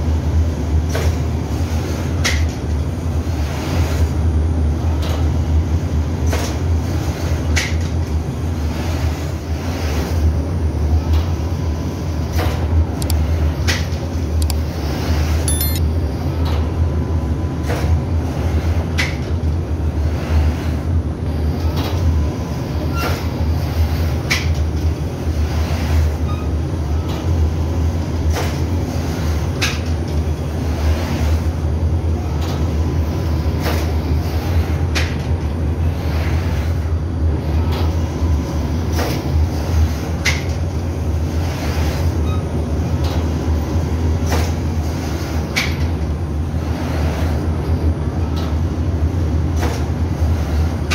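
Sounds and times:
sharp machine clicks: 15.5s - 15.8s.

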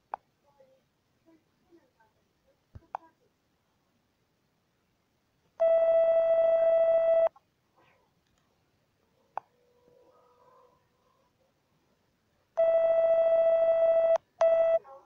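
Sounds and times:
electronic test-tone beep: 5.6s - 7.3s, 12.6s - 14.8s.

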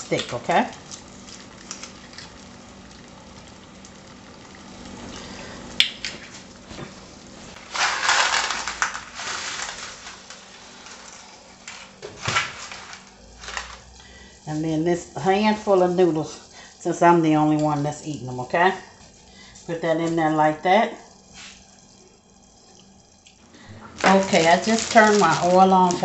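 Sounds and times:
water boiling in saucepan: 0.0s - 26.0s
rustling: 7.5s - 13.9s, 23.6s - 26.0s.

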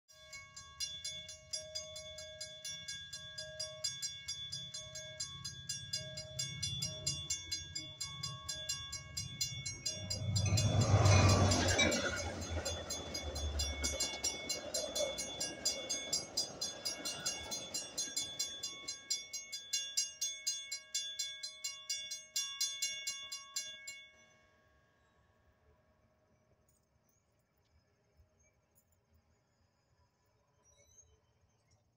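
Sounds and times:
railroad crossing bell ringing: 0.1s - 24.8s
train rumble and clatter: 5.9s - 19.4s.

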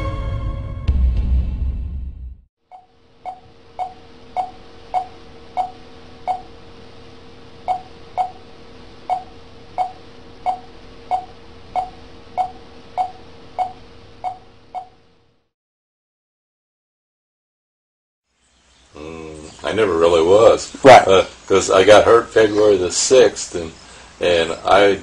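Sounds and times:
heart monitor beeping: 2.7s - 6.7s, 7.6s - 15.0s
faint hum: 2.7s - 15.5s, 18.4s - 25.0s.

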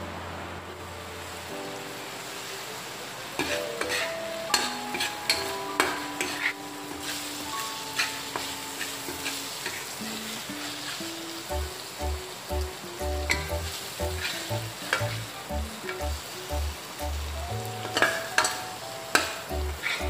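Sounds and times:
chicken sizzling in wok: 0.8s - 20.0s
spatula scraping and clinking pan: 3.4s - 7.2s.

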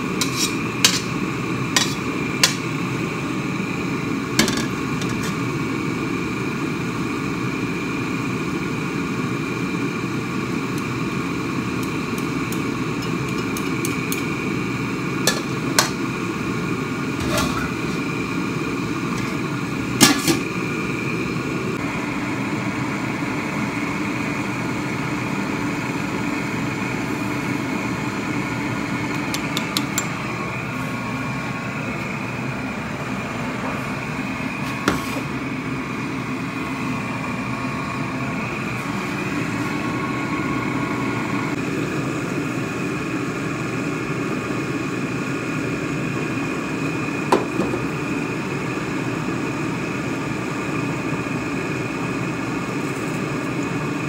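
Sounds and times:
metal spatula clanking on wok: 0.2s - 1.1s.

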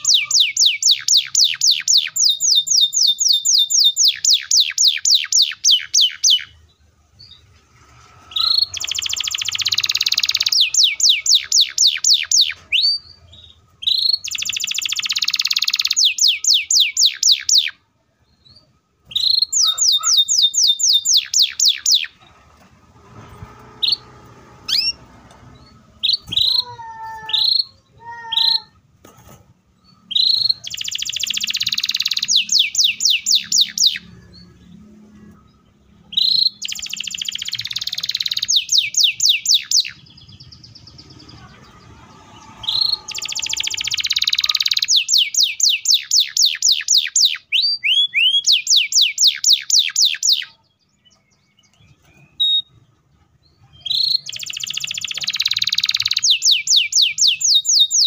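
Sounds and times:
canary single chirps: 0.0s - 6.6s, 8.3s - 17.8s, 18.4s - 22.2s, 29.9s - 34.8s, 36.1s - 51.2s, 53.7s - 58.0s
canary singing trills: 0.0s - 28.9s, 29.6s - 58.0s.

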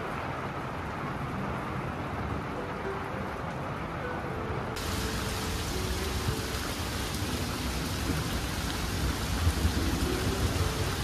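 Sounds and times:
heavy rain on leafy trees: 0.0s - 11.0s
thunder rumble: 4.8s - 11.0s.

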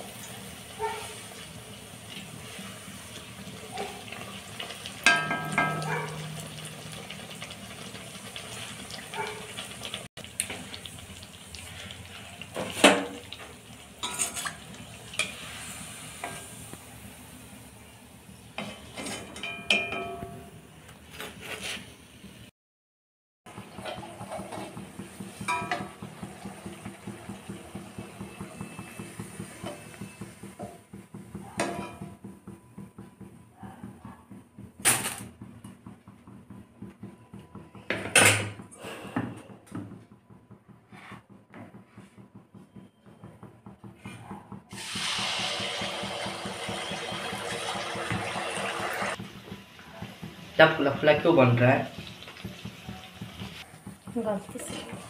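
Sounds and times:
oil sizzling in a pan: 0.0s - 18.9s, 23.5s - 32.4s, 44.7s - 55.0s
steel utensils clattering on stovetop: 3.7s - 8.0s, 14.0s - 15.5s, 18.6s - 20.5s, 23.6s - 32.3s
metal spoon scraping a pan: 14.0s - 16.5s, 18.6s - 19.6s.

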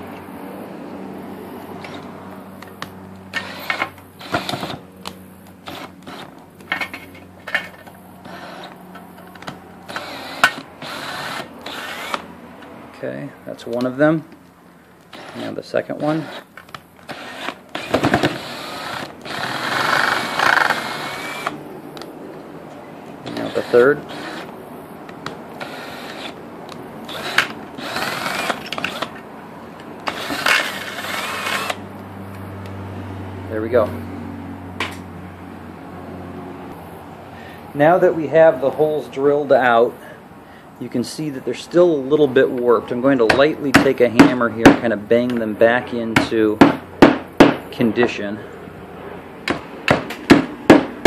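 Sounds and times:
cordless drill running: 3.3s - 4.8s, 5.6s - 6.4s, 8.2s - 8.8s, 9.4s - 12.3s, 15.1s - 21.6s, 23.2s - 24.5s, 25.6s - 26.4s, 27.0s - 29.2s, 30.0s - 31.8s.

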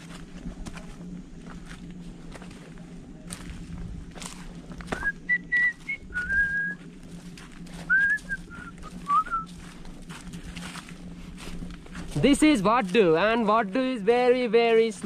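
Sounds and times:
footsteps: 0.0s - 15.0s
person whistling: 5.0s - 6.8s, 7.9s - 9.5s.

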